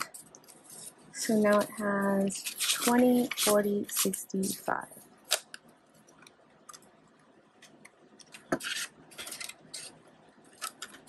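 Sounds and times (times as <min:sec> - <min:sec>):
paper bills and envelope rustling: 0:00.0 - 0:04.7, 0:08.3 - 0:11.0.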